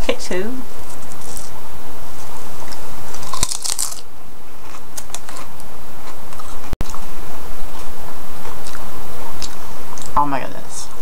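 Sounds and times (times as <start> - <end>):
potato chip crunching: 3.1 - 4.1.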